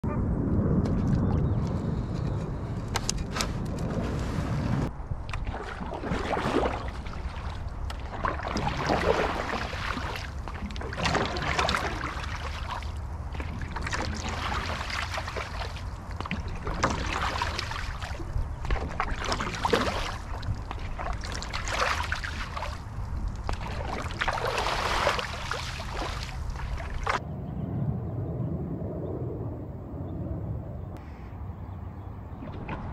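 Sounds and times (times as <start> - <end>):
steady low rumble: 0.0 - 5.6, 26.3 - 32.9
paddle strokes splashing water: 3.4 - 27.2.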